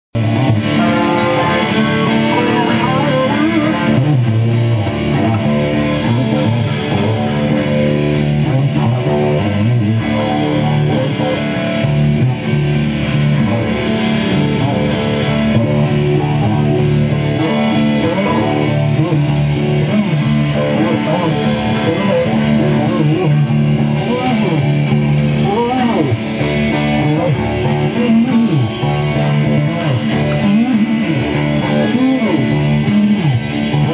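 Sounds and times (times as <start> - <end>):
guitars playing: 0.2 - 33.9.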